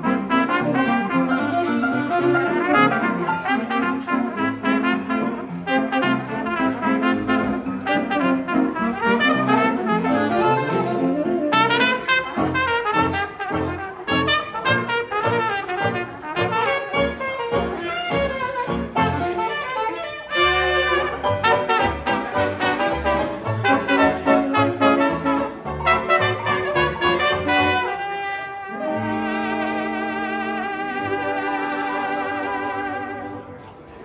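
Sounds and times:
brass horn: 0.0s - 33.7s
banjo: 0.0s - 34.0s
jazz band playing: 0.0s - 34.0s
string bass line: 7.4s - 28.0s.

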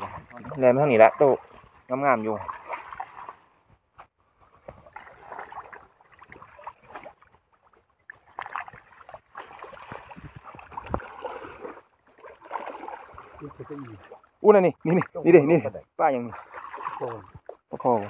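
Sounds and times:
hands splashing in muddy water: 2.4s - 3.5s, 4.6s - 14.2s, 16.3s - 18.0s.

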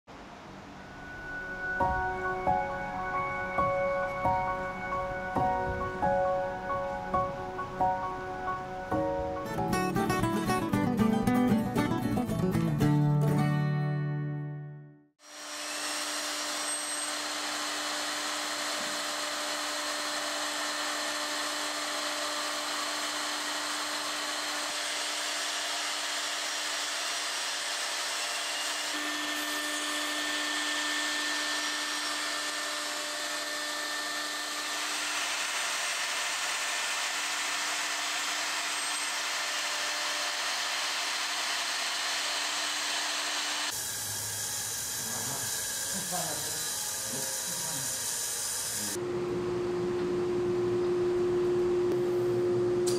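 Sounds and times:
electric router motor whine: 0.2s - 10.4s, 15.2s - 52.9s
router cutting wood: 15.2s - 49.1s.

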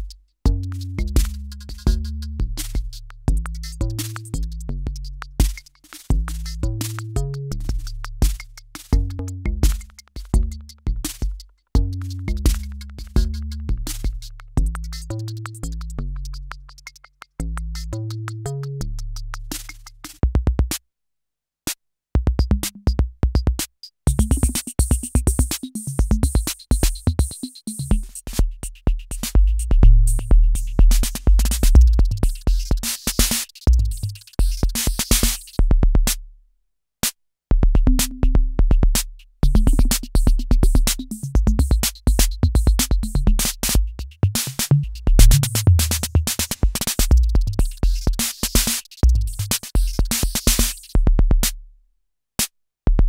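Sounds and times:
rapid clicking percussion: 0.0s - 18.4s, 19.4s - 20.8s, 22.5s - 36.2s, 37.0s - 51.6s
heavy kick drum thuds: 45.0s - 45.8s.

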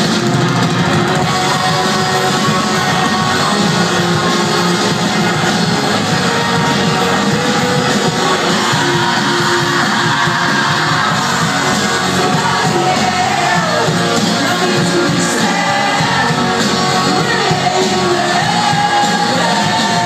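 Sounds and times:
live rock band playing: 0.0s - 20.0s
person singing: 1.1s - 20.0s.

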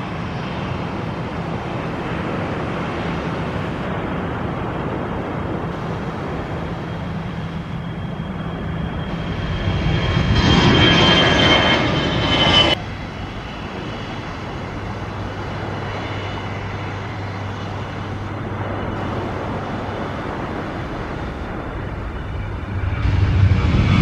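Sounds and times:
distant jet engine hum: 0.0s - 24.0s
jet engines whining overhead: 0.0s - 24.0s.

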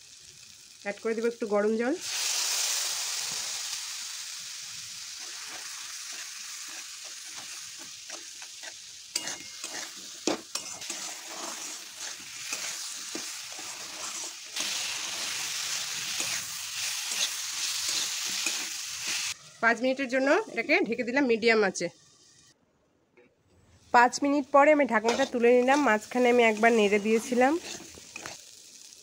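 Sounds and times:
food sizzling in hot oil: 0.0s - 22.6s, 23.8s - 29.0s
metal spatula scraping a pan: 5.2s - 19.4s, 25.0s - 28.4s.

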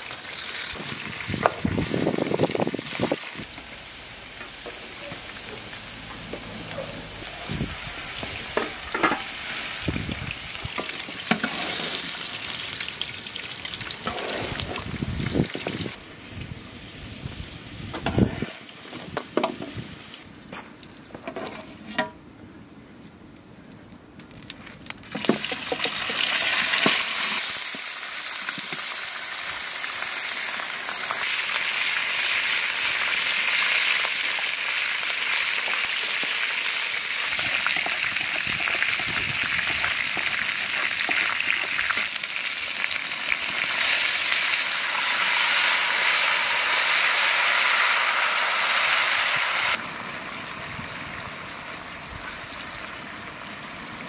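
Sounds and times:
chicken sizzling in hot oil: 0.0s - 16.0s, 25.1s - 54.0s.

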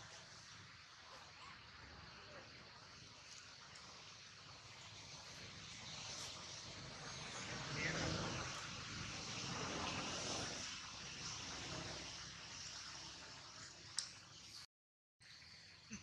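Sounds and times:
steady outdoor hiss: 0.0s - 16.0s
distant engine: 3.8s - 13.7s.

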